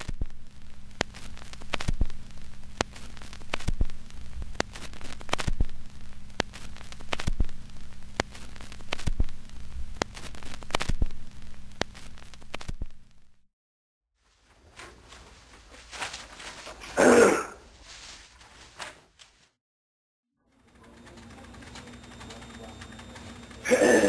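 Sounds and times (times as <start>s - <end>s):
crackle and pops: 0.0s - 13.4s, 20.7s - 24.0s
steady low hum: 0.0s - 13.4s, 20.5s - 24.0s.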